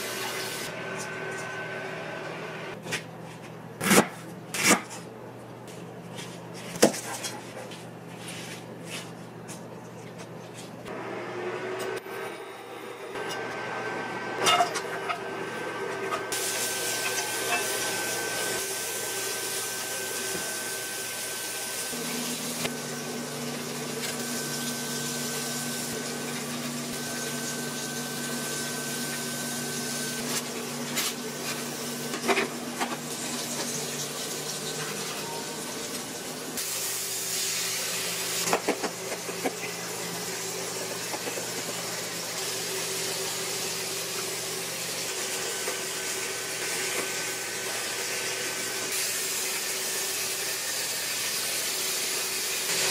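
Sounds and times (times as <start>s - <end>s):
air fryer humming: 0.0s - 52.9s
food sizzling in oil: 16.4s - 32.1s, 48.9s - 52.9s.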